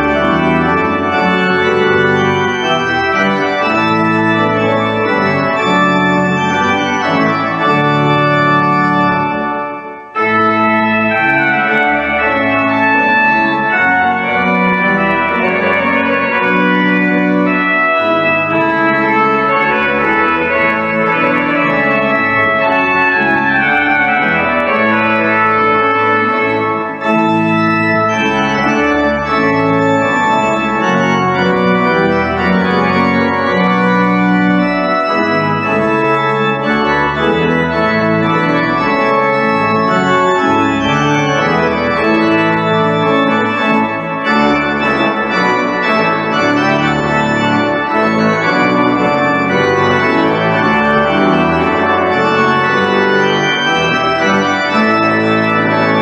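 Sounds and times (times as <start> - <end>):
pipe organ playing chords: 0.0 - 56.0.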